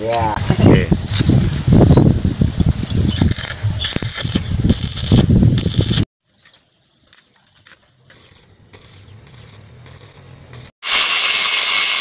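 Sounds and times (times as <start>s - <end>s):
welding arc crackling: 2.8s - 6.1s, 7.1s - 12.0s.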